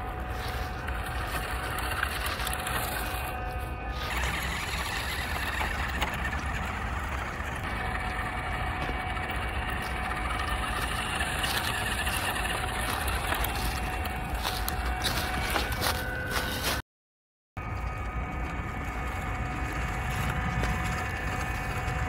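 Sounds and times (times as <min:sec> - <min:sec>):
toy truck motor whine: 0:00.0 - 0:16.8
tyres crunching leaves: 0:00.0 - 0:16.8.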